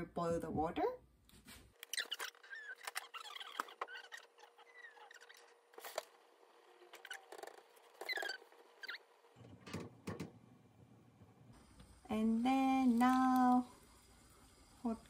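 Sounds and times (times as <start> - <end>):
high squeaky chirps: 1.8 - 5.6, 7.0 - 9.1.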